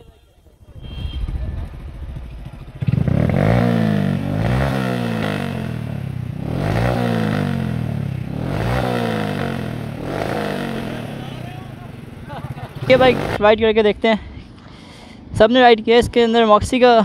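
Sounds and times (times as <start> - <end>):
motorcycle engine revving: 0.5 - 13.4.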